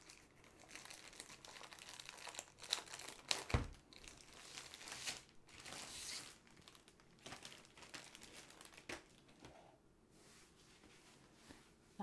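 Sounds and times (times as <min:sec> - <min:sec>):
plastic sleeve crinkling: 0:00.0 - 0:09.5.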